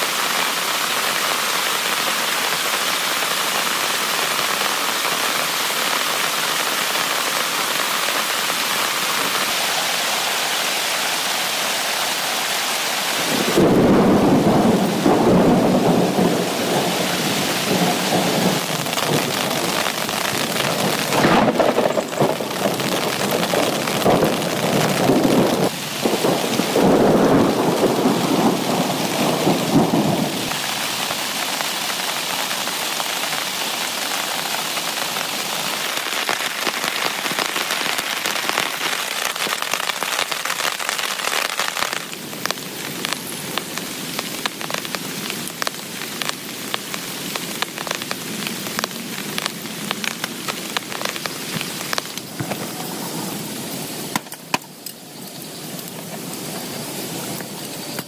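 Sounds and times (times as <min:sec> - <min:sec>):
heavy rain on a tent: 0:00.0 - 0:58.0
thunder rumbling: 0:13.2 - 0:31.4.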